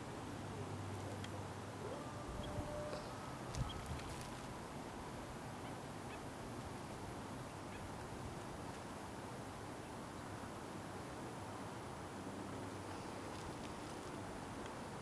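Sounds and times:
outdoor background noise: 0.0 - 15.0
faint honk-like tones: 2.0 - 3.8.

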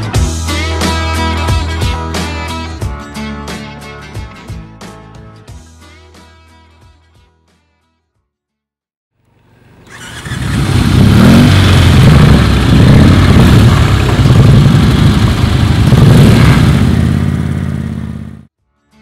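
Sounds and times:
motorcycle engine revving: 9.5 - 18.5.

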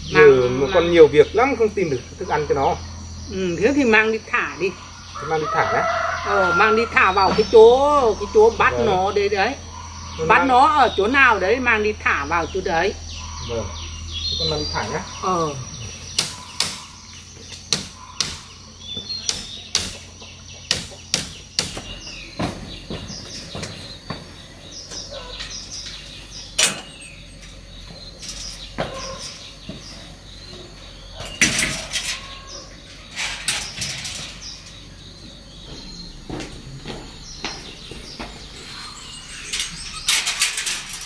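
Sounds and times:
bird chirps: 0.0 - 41.0
footsteps: 22.3 - 26.0, 27.8 - 30.8, 35.1 - 39.8
wire cage door clattering: 24.8 - 29.7, 31.0 - 35.0, 38.5 - 41.0.

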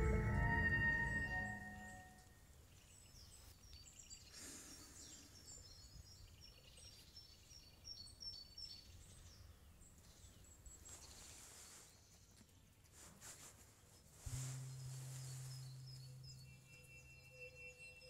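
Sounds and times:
low steady rumble: 0.0 - 2.0, 14.3 - 16.7
birds chirping and whistling: 14.4 - 18.0.

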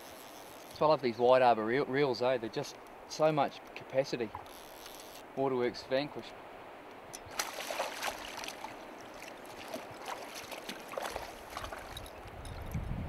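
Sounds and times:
river rushing over stones: 6.4 - 12.3
fish splashing in water: 7.3 - 12.1.

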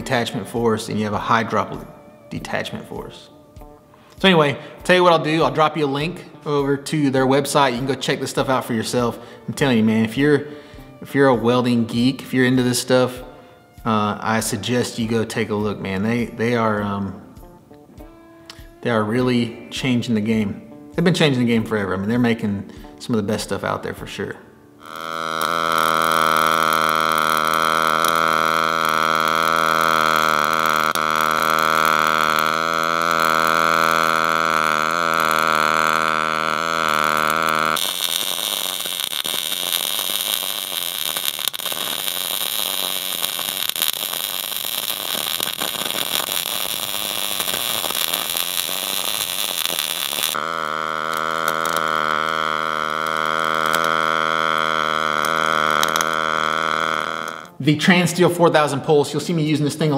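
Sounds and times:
welding arc buzzing and crackling: 0.0 - 18.9, 24.7 - 57.6.

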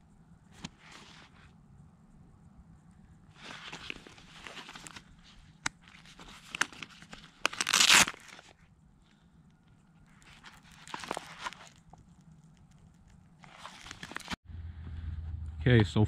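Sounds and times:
nylon pouch rustling and clicking: 0.5 - 1.5, 3.3 - 9.2, 9.8 - 14.4
hook-and-loop flap ripping open: 5.6 - 8.6, 13.4 - 14.4.

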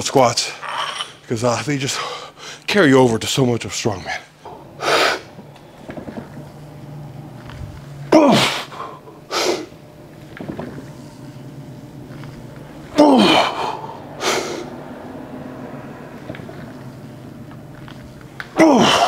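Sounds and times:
man grunting: 8.1 - 8.9, 12.9 - 14.7, 18.6 - 19.0.

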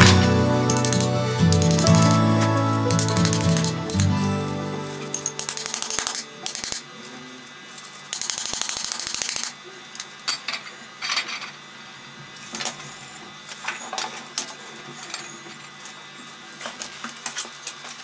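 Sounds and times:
welding arc crackle: 0.0 - 4.2, 5.1 - 6.8, 8.2 - 9.6.

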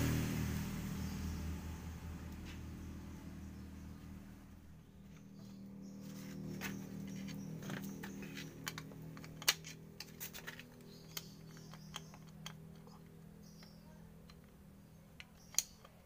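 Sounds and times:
steady low hum: 0.0 - 16.0
metal clicks and taps: 7.2 - 16.0.

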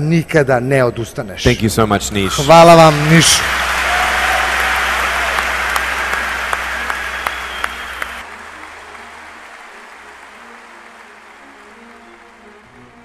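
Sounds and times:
crowd applause: 2.2 - 13.0.

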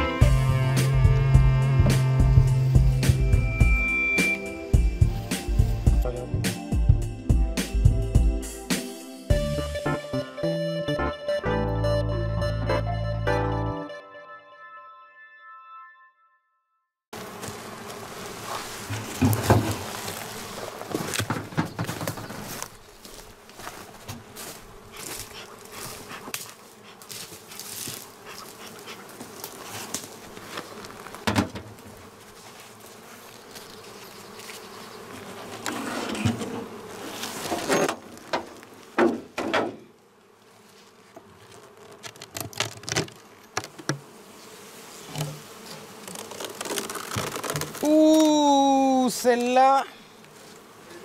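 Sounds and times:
bees buzzing: 0.0 - 14.0, 17.2 - 51.0
hive covers knocking and scraping: 17.2 - 22.7, 27.3 - 33.0, 33.7 - 39.9, 41.1 - 48.3.

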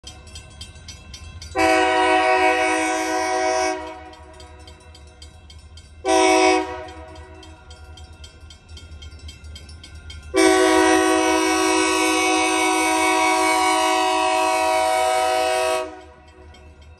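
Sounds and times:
crossing bell ringing: 0.0 - 16.9
locomotive air horn blasts: 1.6 - 4.1, 6.0 - 7.1, 10.4 - 16.2.

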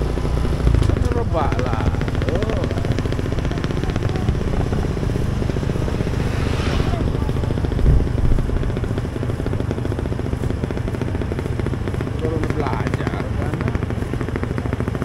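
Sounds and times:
motorcycle engine running: 0.0 - 15.0
low thump: 5.7 - 9.0.

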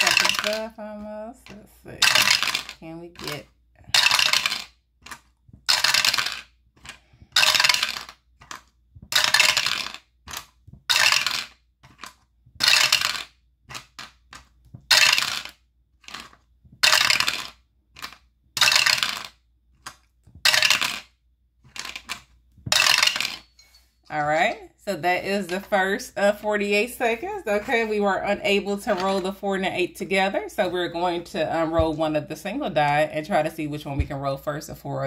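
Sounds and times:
dice rattling in a dice roller: 0.0 - 0.7, 2.0 - 23.4.

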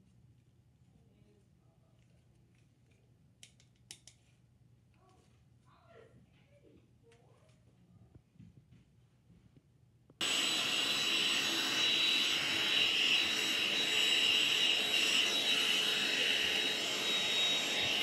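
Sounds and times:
handheld vacuum cleaner whining: 10.2 - 18.0.

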